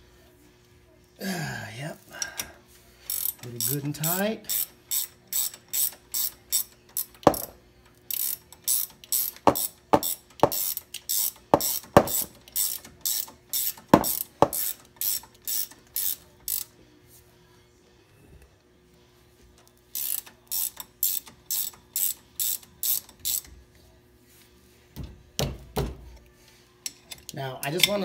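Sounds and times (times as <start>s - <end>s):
ratchet wrench clicking: 2.3s - 16.7s, 19.9s - 23.5s
hand smacking wrench: 3.1s - 16.7s, 20.0s - 23.5s.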